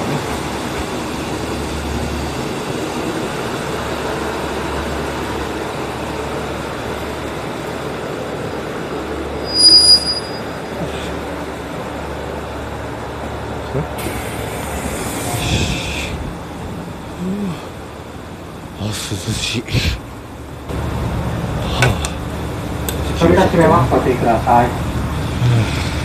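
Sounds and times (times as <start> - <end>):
train engine and wheels rumbling: 0.0 - 26.0
high-pitched brake squeal: 9.4 - 10.8.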